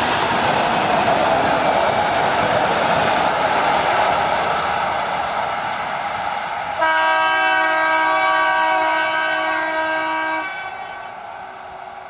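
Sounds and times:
train running noise: 0.0s - 12.0s
train horn blast: 6.8s - 11.2s.

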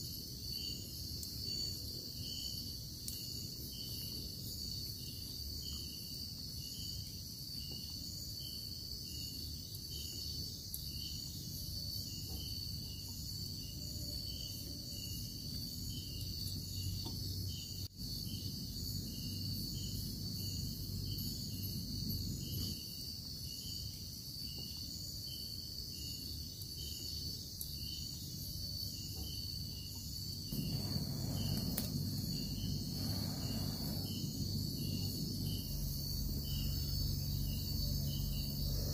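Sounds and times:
night insects trilling: 0.0s - 38.9s
rushing noise: 30.5s - 37.4s
low rumble: 30.5s - 38.9s.

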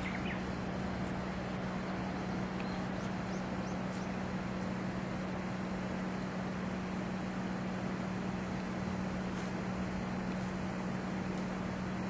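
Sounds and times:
faint bird chirps: 0.0s - 0.5s, 2.6s - 4.2s
steady low hum: 0.0s - 12.0s.

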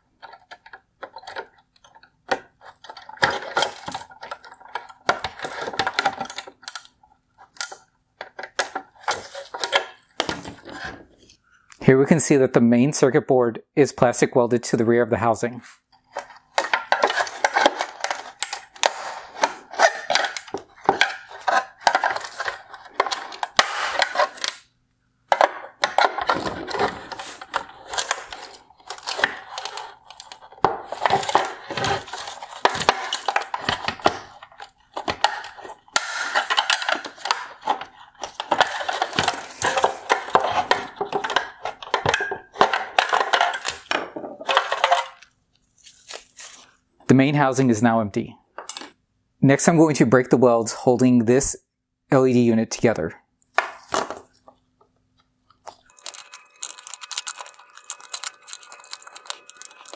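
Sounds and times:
hand tool prying hard plastic: 0.2s - 11.0s, 16.1s - 24.7s, 25.3s - 45.2s.

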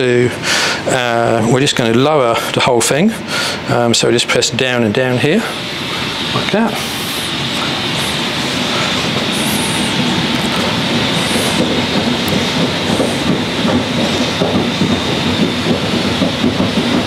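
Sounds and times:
air suspension hissing: 5.0s - 17.0s.

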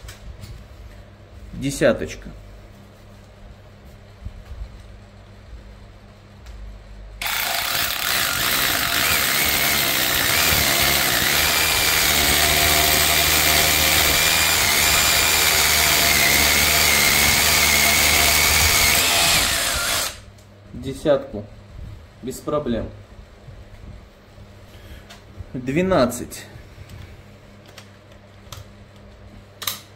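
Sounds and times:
rotary hammer drilling into concrete: 7.2s - 20.3s.

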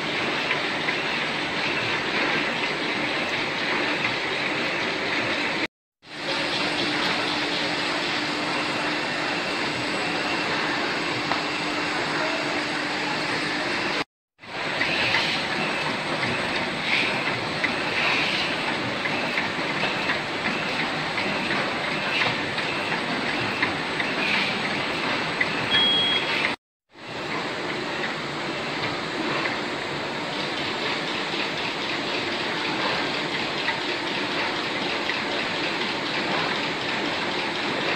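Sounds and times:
die-cutting machine running: 0.0s - 26.6s.

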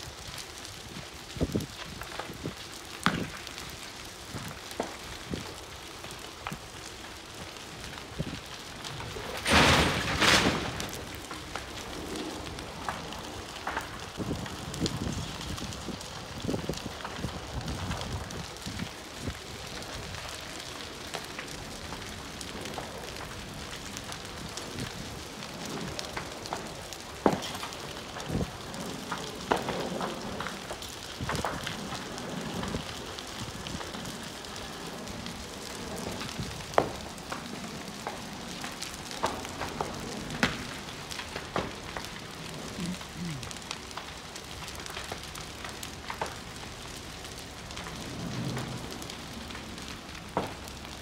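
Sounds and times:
building fire crackling: 0.0s - 51.0s
sharp pops and cracks: 0.0s - 51.0s.

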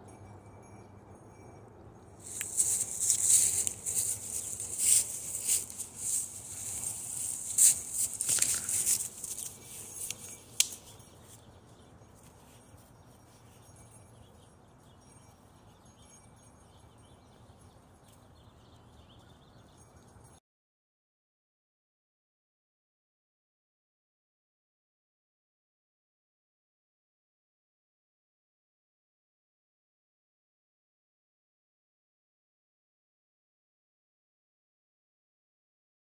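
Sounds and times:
dry leaves rustling and crackling: 2.2s - 10.9s.

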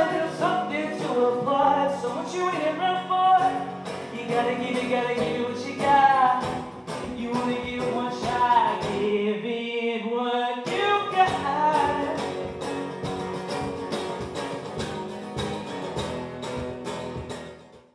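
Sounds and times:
acoustic guitar strumming: 0.0s - 9.4s, 10.6s - 17.9s
man singing: 0.0s - 12.5s.

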